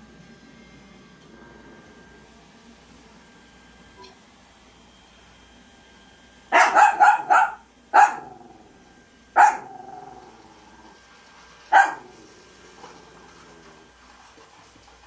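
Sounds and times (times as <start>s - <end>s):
small dog barking: 6.5s - 8.6s, 9.4s - 10.1s, 11.7s - 12.2s.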